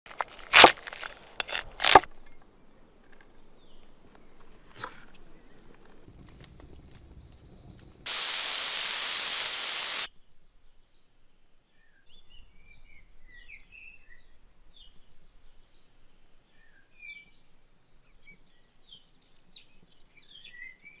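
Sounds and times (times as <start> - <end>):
knife cutting cabbage on board: 0.2 - 2.1
meat sizzling in a hot pan: 8.1 - 10.1.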